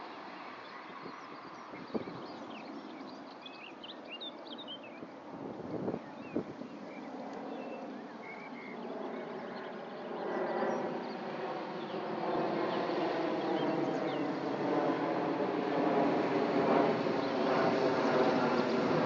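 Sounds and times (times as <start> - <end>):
faint high bird chirps: 6.0 - 11.3.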